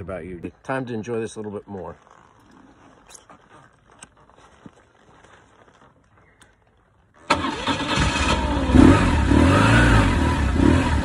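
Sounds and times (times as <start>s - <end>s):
motorcycle engine starting and idling: 7.2s - 11.0s.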